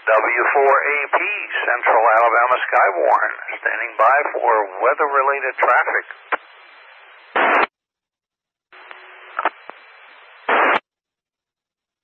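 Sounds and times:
radio hiss: 0.0 - 7.7, 8.8 - 10.8.

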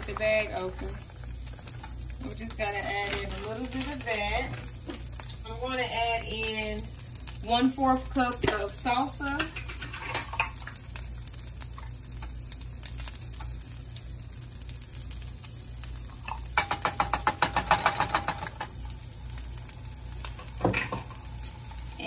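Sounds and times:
meat sizzling in a frying pan: 0.0 - 22.0.

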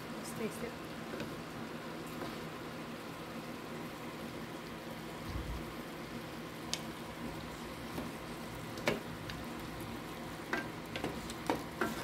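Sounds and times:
food sizzling in a pan: 0.0 - 12.0
wooden spatula stirring: 7.3 - 12.0.

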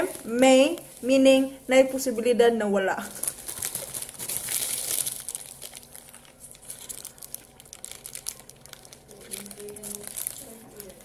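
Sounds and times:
burger wrapper crinkling: 3.1 - 11.0.

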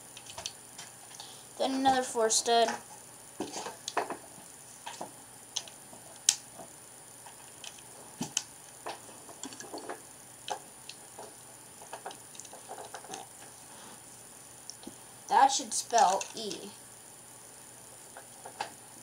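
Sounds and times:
plastic bricks clicking and clattering: 16.0 - 16.7.

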